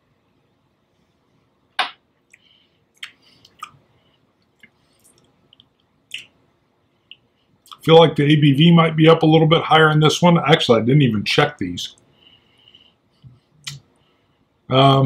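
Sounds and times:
lip smacks: 1.8s - 3.8s, 4.4s - 6.4s
tongue clicks: 2.3s - 3.8s, 4.5s - 6.4s.

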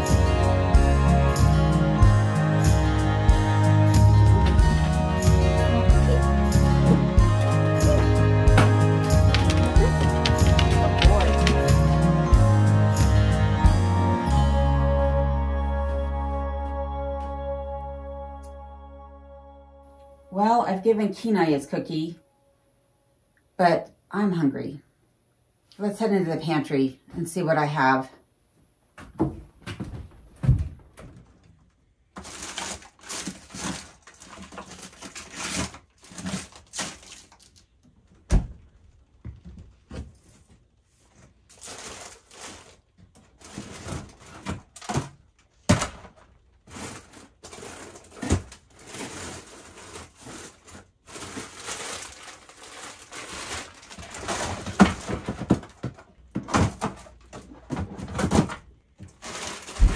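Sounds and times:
plastic bags rustling: 4.2s - 12.3s, 32.1s - 37.8s, 40.2s - 59.9s.

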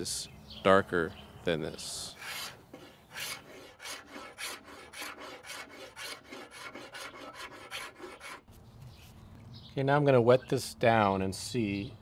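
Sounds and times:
hand scraper scraping wood: 2.1s - 8.5s.

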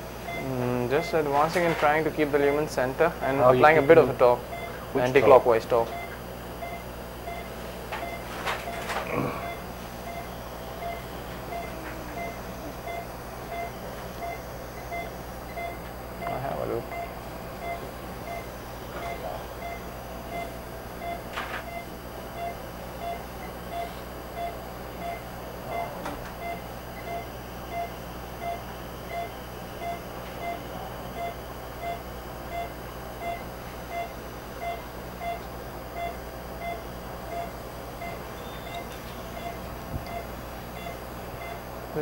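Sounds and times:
equipment hum: 0.0s - 42.0s
pulse oximeter beeping: 3.6s - 41.7s.

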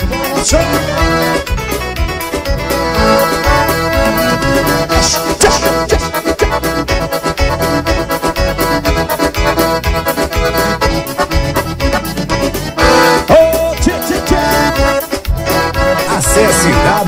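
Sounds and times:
accordion playing: 0.0s - 17.0s
pulsing bass beat: 0.0s - 17.0s.

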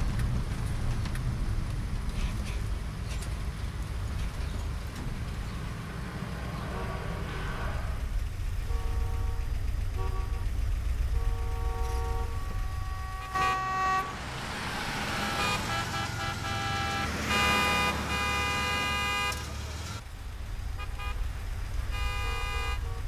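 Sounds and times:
car engine rumble: 0.0s - 23.0s
traffic hiss: 5.1s - 23.0s
car horns honking: 8.0s - 20.0s, 20.7s - 23.0s.

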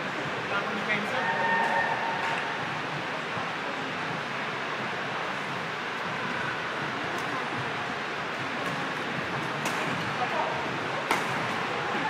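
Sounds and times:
indoor sports hall background noise: 0.0s - 12.0s
racket striking shuttlecock: 11.1s - 11.5s.

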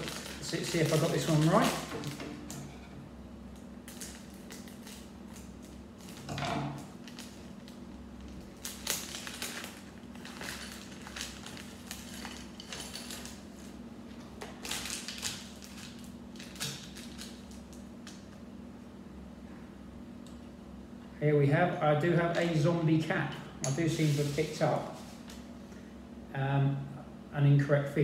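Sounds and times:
plastic packet crinkling and tearing: 0.0s - 2.2s, 3.8s - 13.8s, 14.4s - 18.3s.

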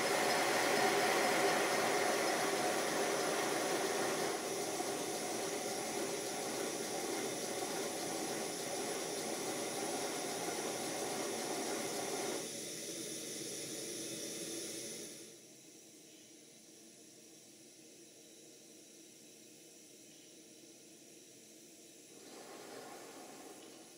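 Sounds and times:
steam hissing: 0.0s - 15.4s, 22.1s - 23.9s.

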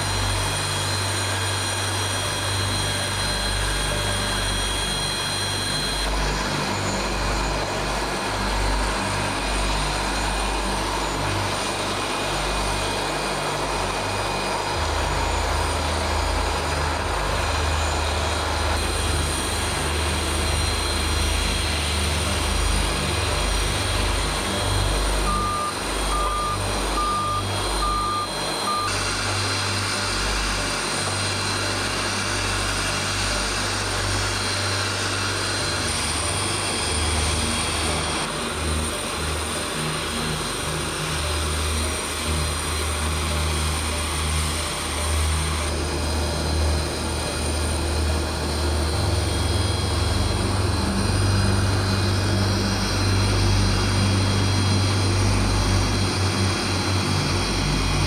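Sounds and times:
aircraft and vehicle engines: 0.0s - 58.0s
reverse alarm beeping: 25.2s - 29.0s.

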